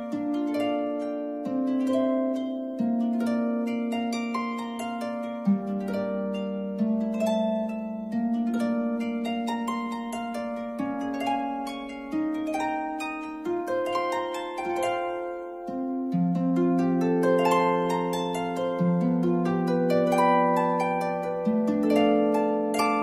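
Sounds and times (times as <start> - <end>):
instrumental music with plucked notes: 0.0 - 23.0.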